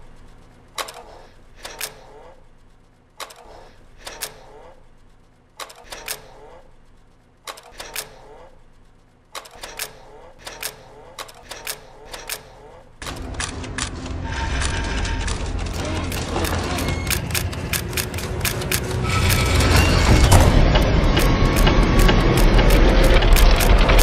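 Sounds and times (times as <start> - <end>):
low hum: 0.0 - 24.0
sharp mechanical clicks: 0.7 - 2.4, 3.2 - 4.8, 5.5 - 8.6, 9.2 - 24.0
rumble with sustained tone: 13.0 - 24.0.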